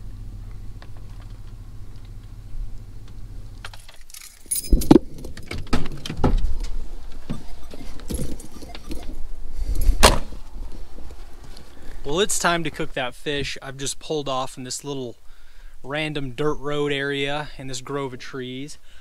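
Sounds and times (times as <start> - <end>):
low steady rumble: 0.0 - 19.0
gear clinking and rattling: 3.6 - 10.0.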